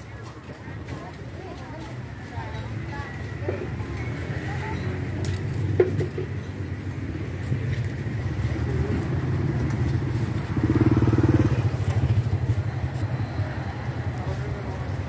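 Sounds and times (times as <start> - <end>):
motorcycle engine running: 6.9 - 14.2.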